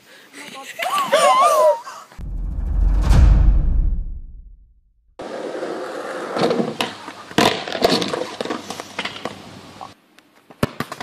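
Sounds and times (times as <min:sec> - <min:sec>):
intro sting: 0:02.2 - 0:04.8
wheels rolling on asphalt: 0:05.2 - 0:10.0.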